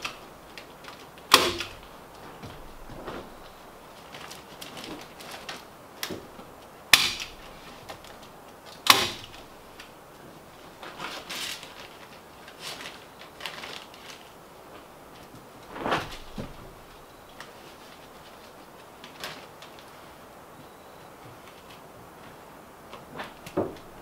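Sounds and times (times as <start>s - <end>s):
insulation rustling: 0.0s - 24.0s
staple gun shots: 1.3s - 1.8s, 6.9s - 7.4s, 8.8s - 9.4s.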